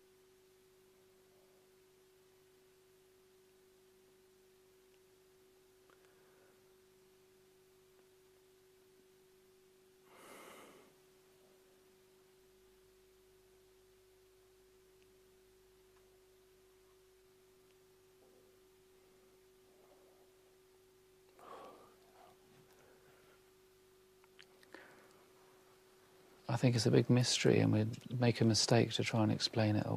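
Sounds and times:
faint steady hum: 0.0 - 29.9
soft breath or sigh: 10.0 - 11.0, 21.4 - 23.4.

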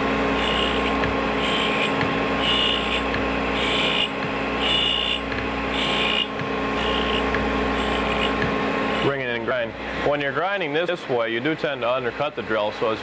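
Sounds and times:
grinder wheel humming: 0.0 - 10.0
hissing grind of drill bit: 0.4 - 9.1.

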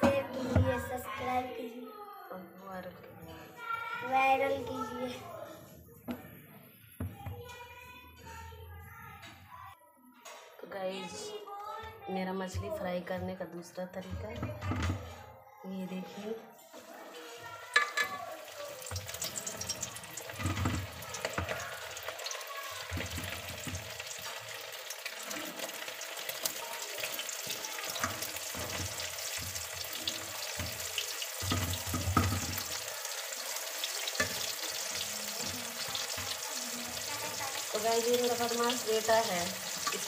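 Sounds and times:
fish sizzling in hot oil: 17.1 - 40.0.

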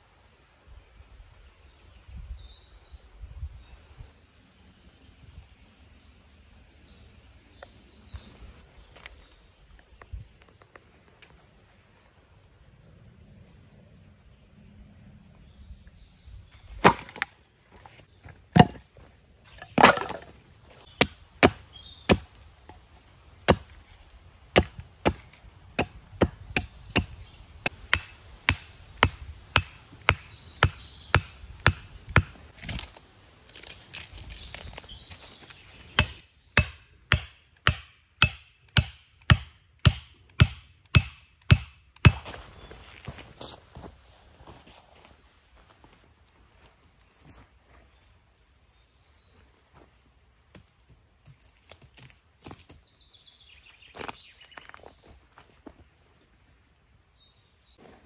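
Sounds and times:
axe chopping wood: 16.6 - 17.4, 18.5 - 22.4, 23.4 - 23.8, 24.5 - 33.0, 34.4 - 42.3.

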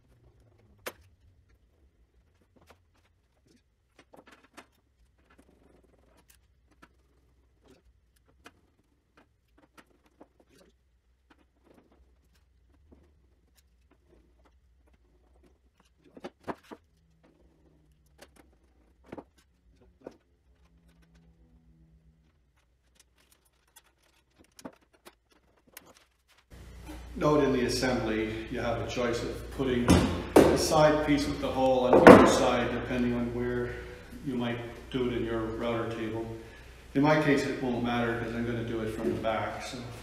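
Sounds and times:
low steady hum: 26.5 - 40.0
knocks: 29.9 - 30.8, 31.9 - 32.6.

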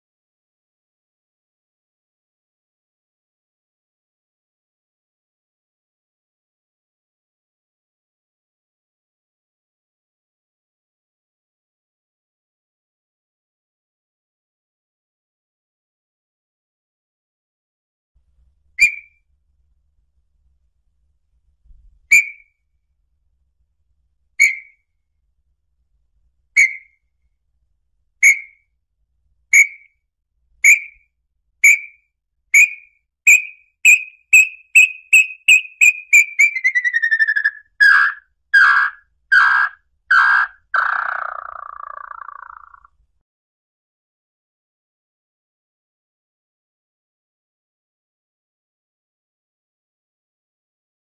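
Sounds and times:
bird whistling song: 18.8 - 19.2, 22.1 - 22.6, 24.4 - 24.8, 26.6 - 27.0, 28.2 - 28.6, 29.5 - 30.0, 30.6 - 42.9.

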